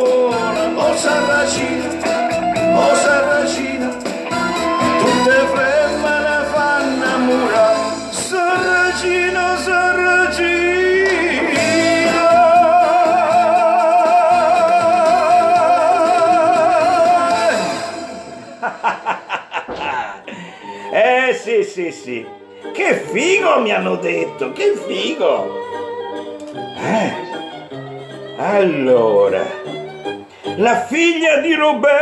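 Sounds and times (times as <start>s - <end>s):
man singing into microphone: 0.0s - 18.3s, 30.6s - 32.0s
backing track music: 0.0s - 32.0s
people laughing: 17.9s - 20.6s.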